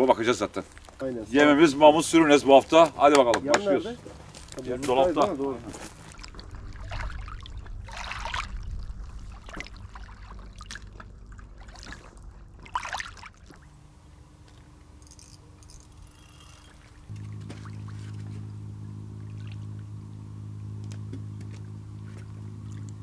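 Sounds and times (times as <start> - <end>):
steady low hum: 0.0 - 23.0
low rumble: 5.7 - 14.8, 17.0 - 23.0.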